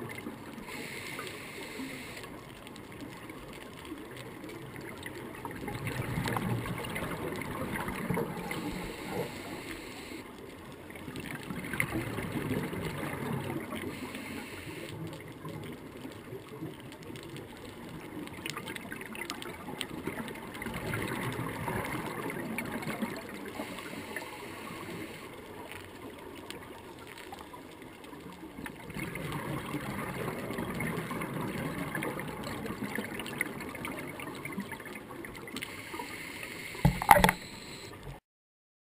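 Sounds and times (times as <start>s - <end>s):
steady underwater hiss: 0.0s - 11.0s, 11.6s - 16.6s, 18.0s - 38.2s
exhaled bubbles bubbling up: 4.6s - 9.5s, 10.9s - 14.0s, 15.2s - 23.8s, 28.5s - 35.6s.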